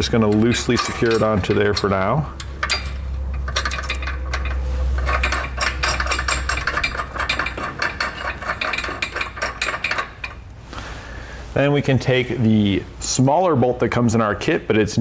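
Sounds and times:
metal washers and nut clinking: 0.0 - 10.5
low background hum: 0.0 - 15.0.

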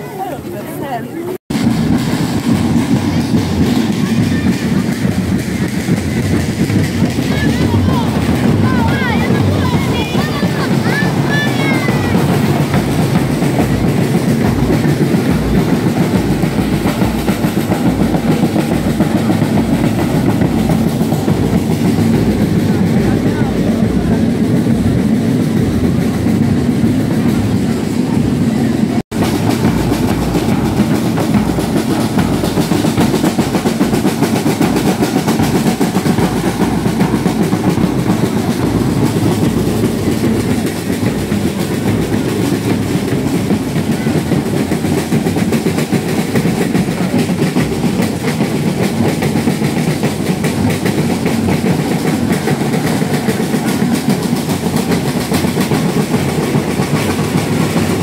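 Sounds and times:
street drums fast rolling beat: 0.0 - 58.0.

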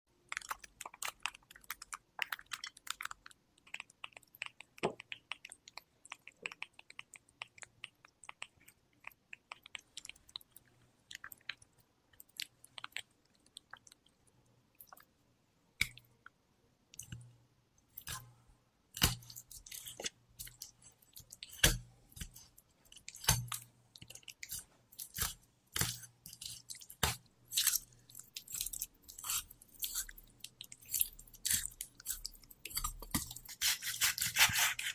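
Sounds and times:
knife cutting on wooden board: 33.2 - 34.9.

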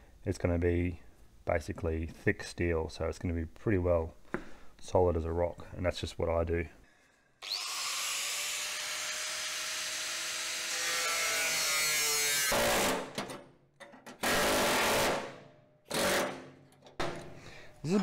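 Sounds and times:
angle grinder cutting steel: 7.4 - 12.8.

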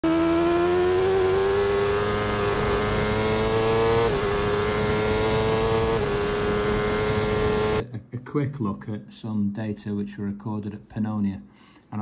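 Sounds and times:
motorcycle engine at high speed: 0.0 - 7.8.

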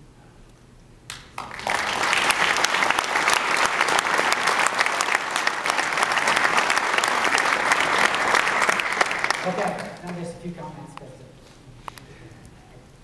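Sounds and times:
audience applauding: 1.1 - 10.4.

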